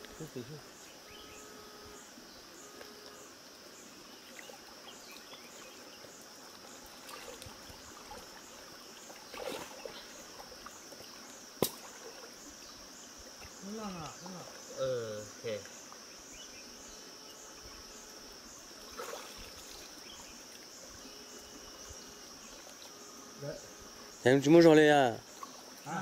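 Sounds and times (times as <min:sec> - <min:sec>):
insect chirping: 0:00.0 - 0:26.0
shallow stream rushing: 0:03.3 - 0:14.8, 0:18.2 - 0:26.0
water sloshing: 0:06.4 - 0:12.6, 0:18.7 - 0:26.0.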